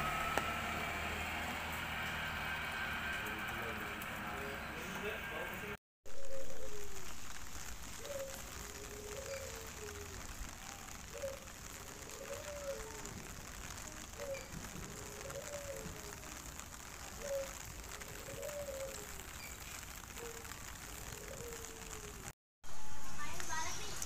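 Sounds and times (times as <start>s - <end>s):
dove cooing: 6.2s - 7.0s, 8.0s - 16.5s, 17.1s - 19.3s, 20.2s - 22.3s.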